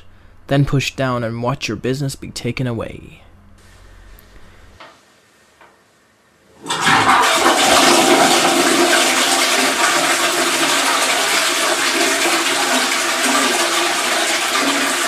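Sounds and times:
toilet flushing: 6.5 - 15.0.

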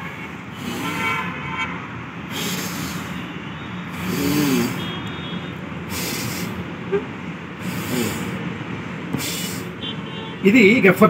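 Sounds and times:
city traffic: 0.0 - 11.0
forceful exhalations through nose: 0.5 - 1.2, 2.3 - 3.2, 3.9 - 4.9, 5.9 - 6.6, 7.6 - 8.4, 9.2 - 9.8.

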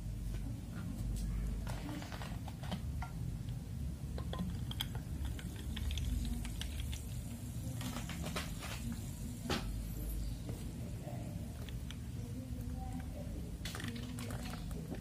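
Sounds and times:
steady low hum: 0.0 - 15.0
drink splashing and fizzing: 13.6 - 15.0.

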